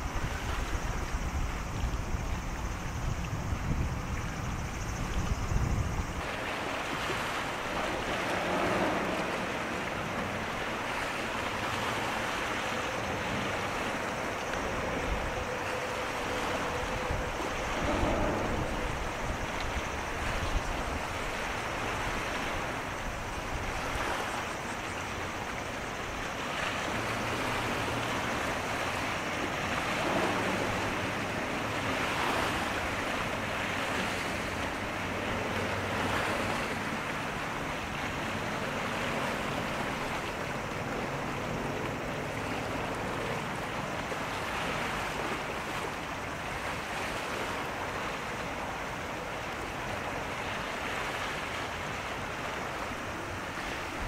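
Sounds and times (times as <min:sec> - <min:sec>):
wind on microphone: 0:00.0 - 0:48.3
waves washing: 0:00.0 - 0:54.0
faint low ship engine drone: 0:04.0 - 0:47.0.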